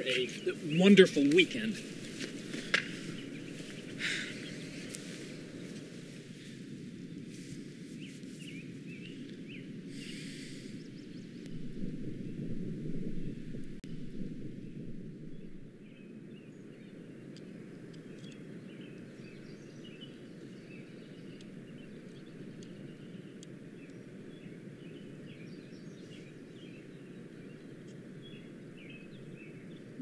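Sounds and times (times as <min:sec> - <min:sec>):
open-air background noise: 0:00.0 - 0:11.6, 0:13.3 - 0:30.0
small birds chirping: 0:00.0 - 0:12.4, 0:14.5 - 0:30.0.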